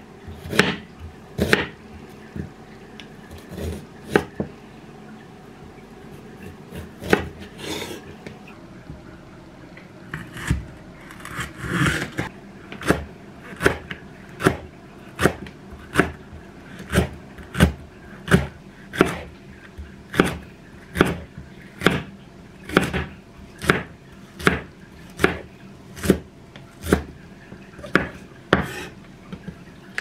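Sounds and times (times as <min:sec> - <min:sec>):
knife slicing green onion: 0:01.4 - 0:01.8, 0:15.2 - 0:19.3, 0:27.8 - 0:28.9.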